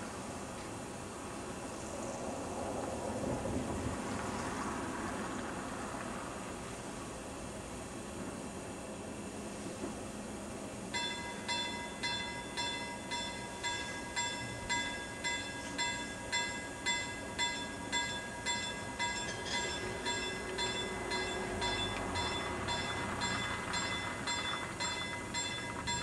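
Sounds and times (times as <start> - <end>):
freight train rumble: 0.0 - 26.0
level crossing bell ringing: 11.0 - 26.0.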